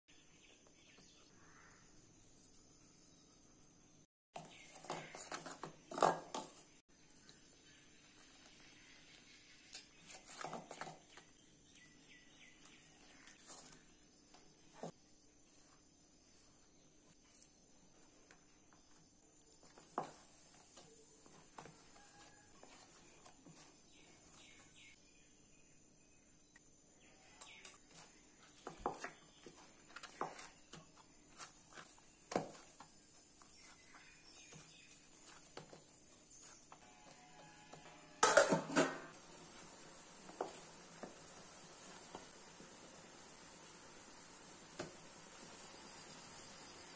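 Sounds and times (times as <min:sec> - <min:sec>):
faint steady hiss: 0:38.2 - 0:46.9.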